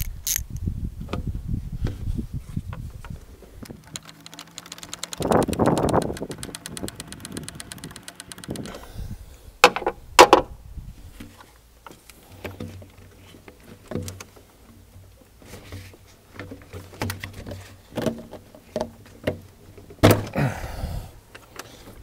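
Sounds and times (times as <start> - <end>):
tools clicking and knocking: 0.0 - 0.6, 3.7 - 8.8.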